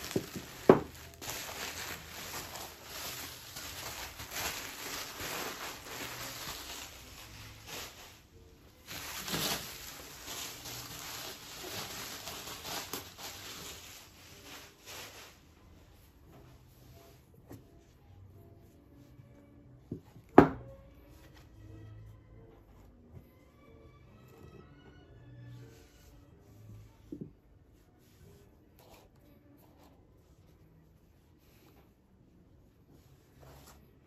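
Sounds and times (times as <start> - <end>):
bubble wrap crinkling: 0.0 - 18.0.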